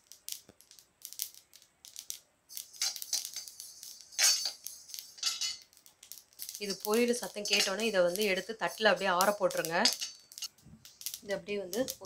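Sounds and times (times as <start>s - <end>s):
sesame seeds popping: 0.0s - 12.0s
spatula scraping and rattling: 2.5s - 11.2s.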